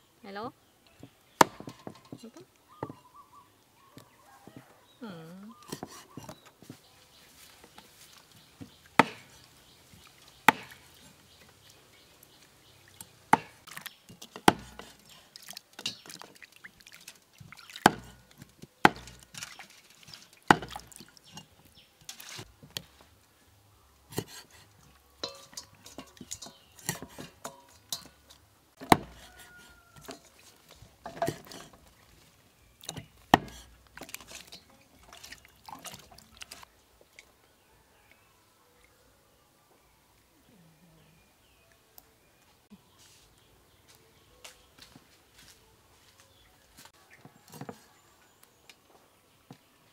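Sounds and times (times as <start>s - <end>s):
cleaver chopping on wooden board: 1.4s - 2.0s, 9.0s - 9.4s, 10.5s - 10.8s, 13.3s - 13.7s, 14.4s - 15.0s, 17.8s - 18.2s, 18.8s - 19.2s, 20.5s - 20.9s, 28.8s - 29.6s, 33.0s - 33.7s
wet meat handling: 24.2s - 37.3s.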